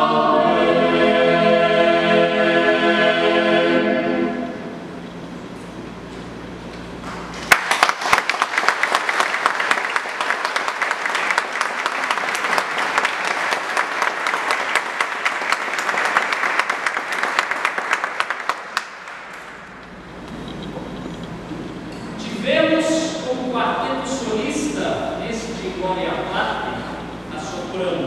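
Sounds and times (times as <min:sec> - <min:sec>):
audience applauding: 0:07.4 - 0:19.8.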